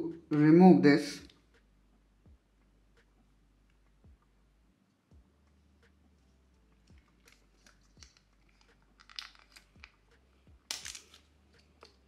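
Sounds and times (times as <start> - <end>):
film crinkling and tearing: 7.1 - 10.0, 10.7 - 12.0
plastic film peeling off metal: 7.2 - 10.0, 10.7 - 12.0.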